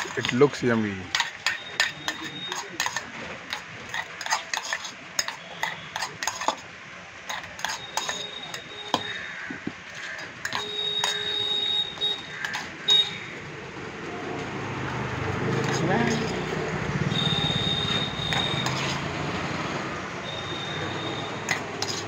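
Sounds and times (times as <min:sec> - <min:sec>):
spoon scraping metal bowl: 0:00.0 - 0:00.4, 0:01.1 - 0:06.6, 0:07.3 - 0:09.2, 0:09.9 - 0:13.1, 0:15.6 - 0:19.2, 0:20.2 - 0:22.0
metal bowl ringing: 0:07.5 - 0:09.2.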